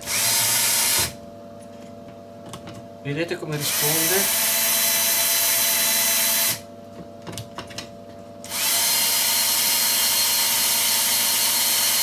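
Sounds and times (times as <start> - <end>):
drill motor running: 0.0 - 1.2, 3.6 - 6.7, 8.4 - 12.0.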